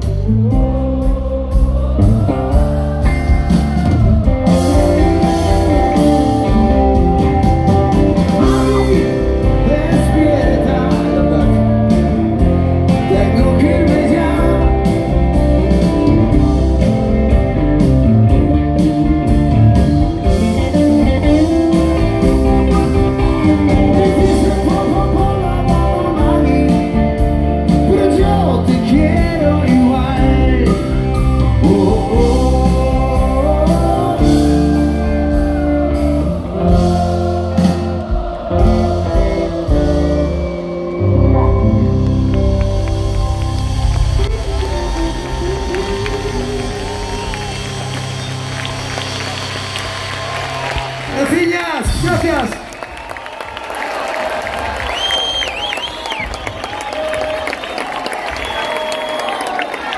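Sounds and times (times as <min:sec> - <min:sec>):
person singing lead vocal: 0:00.0 - 0:17.4, 0:21.4 - 0:41.6, 0:44.2 - 0:47.6
live rock band playing: 0:00.0 - 0:52.9.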